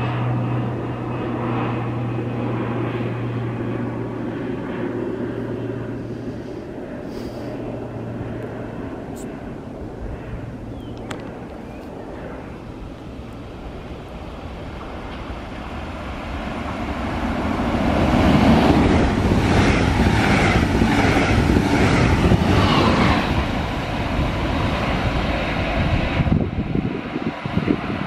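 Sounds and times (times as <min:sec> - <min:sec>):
train wheels rumbling on rails: 0:14.7 - 0:25.1.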